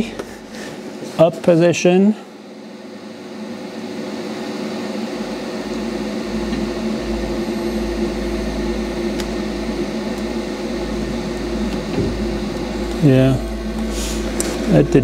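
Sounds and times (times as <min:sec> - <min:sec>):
electric motor humming: 0:02.6 - 0:15.0
deep rumble: 0:05.2 - 0:15.0.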